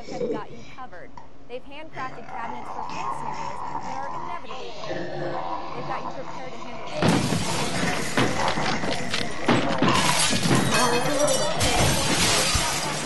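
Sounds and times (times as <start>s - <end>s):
glass shattering: 7.0s - 13.0s.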